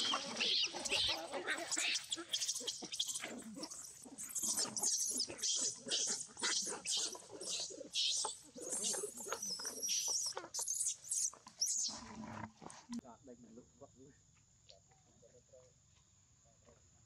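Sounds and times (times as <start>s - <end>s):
macaques screaming and squealing: 0.0s - 12.0s.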